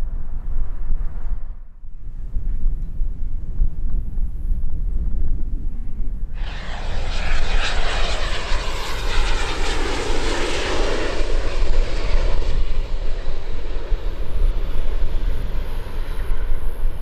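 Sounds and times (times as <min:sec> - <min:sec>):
jet engines passing: 0:06.3 - 0:17.0.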